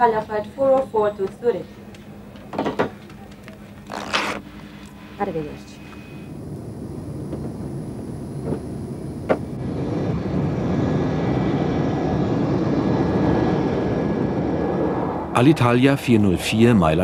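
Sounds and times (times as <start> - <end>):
jet airliner taking off: 5.2 - 17.0.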